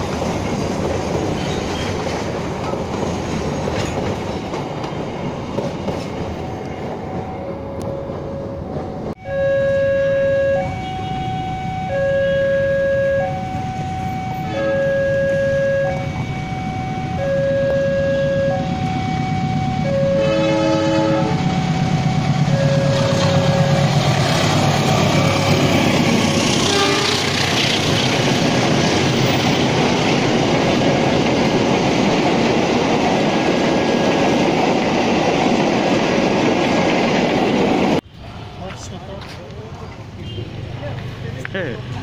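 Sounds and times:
train passing rumble and clatter: 0.0s - 9.2s, 13.3s - 42.0s
train horn two-tone: 9.2s - 24.1s, 26.6s - 27.4s.

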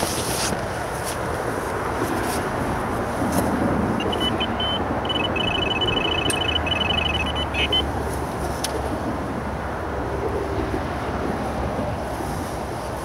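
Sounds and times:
traffic: 0.0s - 13.0s
bite alarm short high beeps: 4.0s - 7.9s.

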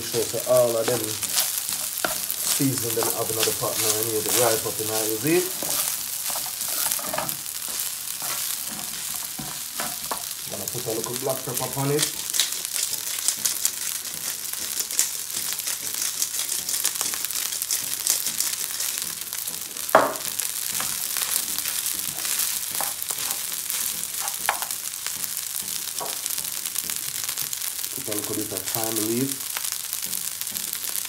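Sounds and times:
rice sizzling in frying pan: 0.0s - 31.0s
spoon knocking on pan: 0.9s - 4.4s, 5.0s - 10.3s, 19.9s - 21.0s, 24.2s - 24.7s, 26.0s - 26.2s.

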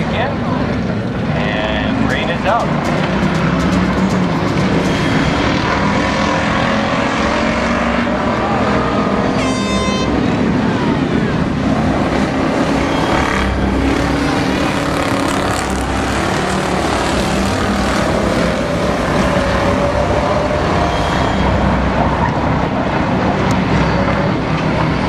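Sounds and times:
race car engines passing: 0.0s - 25.0s
high-pitched tone: 1.9s - 7.5s, 11.9s - 24.4s.

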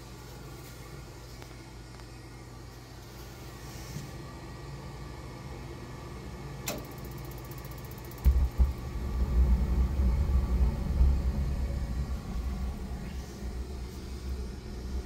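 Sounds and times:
furnace inducer motor humming: 0.0s - 15.0s
gas burners rumbling: 2.8s - 15.0s
sharp click: 6.6s - 8.4s.

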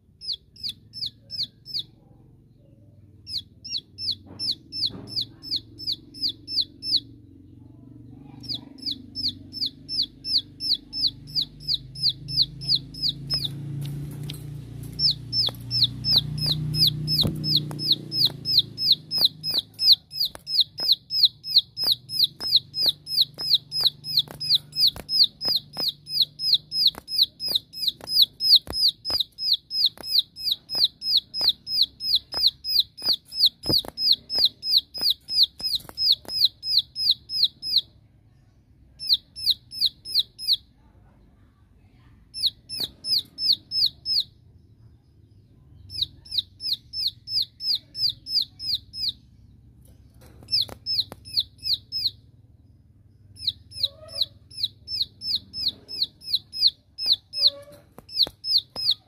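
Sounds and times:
bird giving rapid sharp calls: 3.3s - 7.1s, 8.4s - 13.7s, 14.8s - 37.8s, 50.4s - 52.2s, 53.4s - 59.0s.

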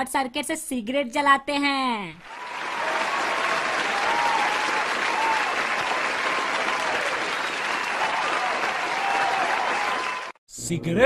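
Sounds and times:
audience applause: 2.2s - 10.4s.

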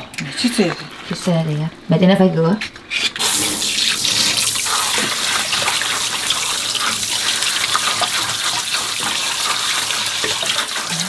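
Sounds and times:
tap water running into sink: 3.2s - 11.0s.

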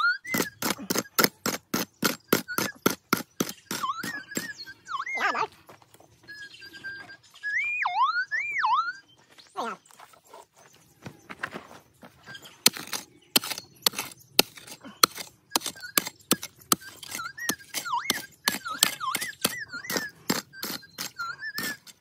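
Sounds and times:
bird whistling: 0.0s - 9.4s, 12.1s - 14.3s, 15.5s - 22.0s
pick striking gravelly ground: 0.2s - 4.7s, 11.0s - 22.0s.

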